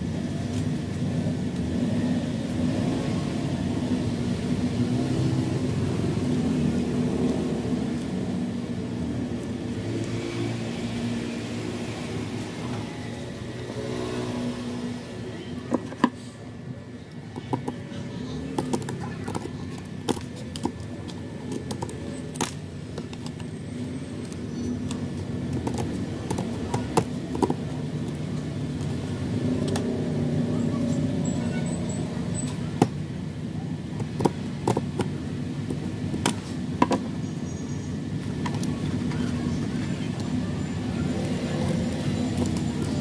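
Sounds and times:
scissors cracking wooden sticks: 24.2s - 30.0s.

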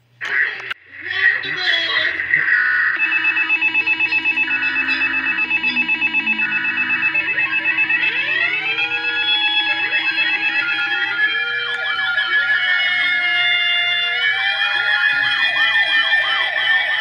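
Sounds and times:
electronic alert pulsing: 1.0s - 16.6s
siren-like sweeps: 2.1s - 17.0s.

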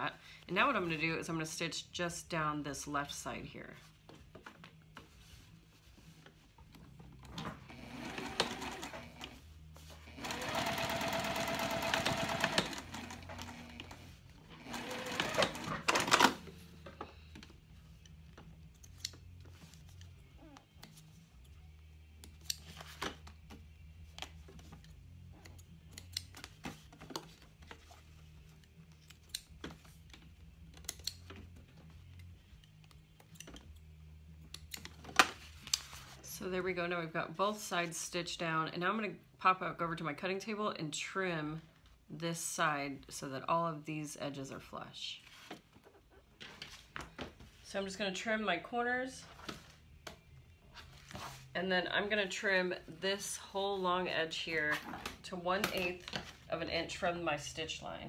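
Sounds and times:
sewing machine stitching: 7.7s - 9.4s, 10.0s - 14.0s, 14.6s - 16.3s.

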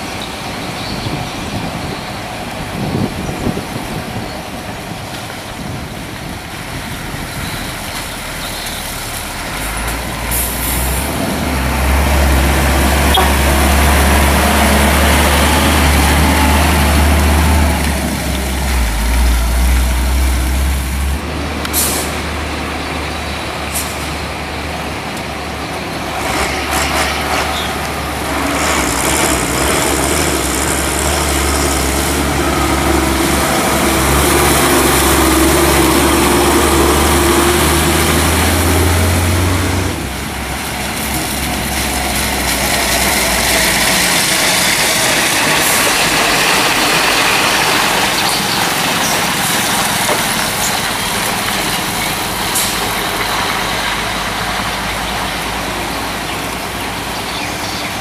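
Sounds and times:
diesel truck engines rumbling: 0.0s - 58.0s
air brakes hissing: 21.8s - 22.2s.

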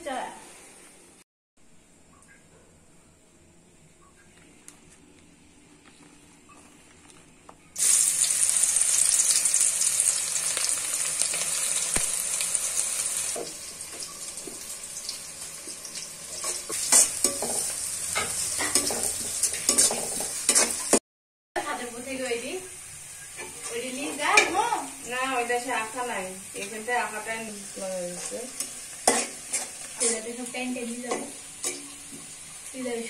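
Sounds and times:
onions sizzling in hot oil: 7.8s - 21.0s, 21.6s - 33.0s
utensil scraping pan: 16.4s - 21.0s, 28.1s - 32.2s.

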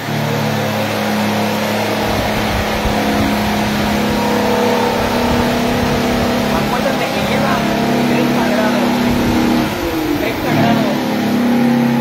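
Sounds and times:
machine hum: 0.0s - 12.0s
low rumble: 1.7s - 10.5s.

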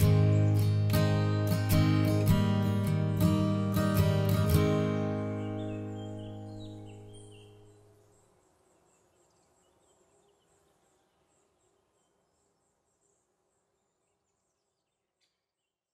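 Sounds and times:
acoustic guitar chord ringing: 0.0s - 7.7s
high chirps: 0.0s - 7.8s.

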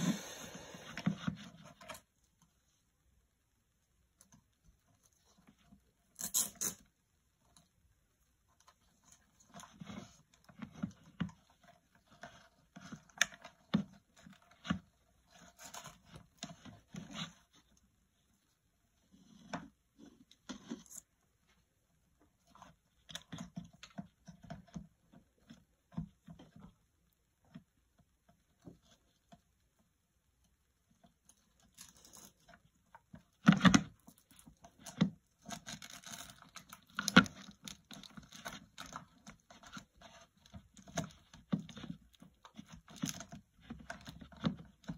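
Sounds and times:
plastic parts clicking and scraping: 31.3s - 44.9s.

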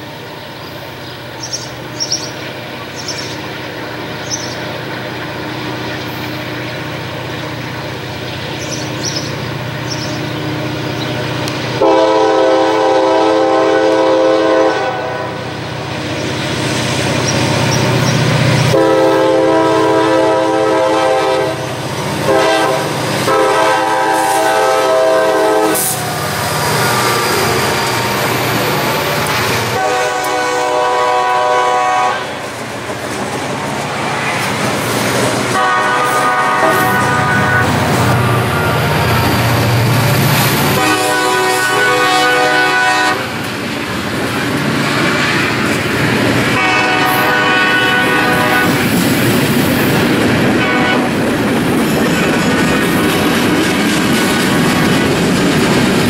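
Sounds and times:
diesel locomotive engines rumbling: 0.0s - 56.0s
train air horn blasts: 11.8s - 15.6s, 18.7s - 28.2s, 29.7s - 32.4s, 35.5s - 39.1s, 40.7s - 43.4s, 46.5s - 49.0s, 50.5s - 51.2s.

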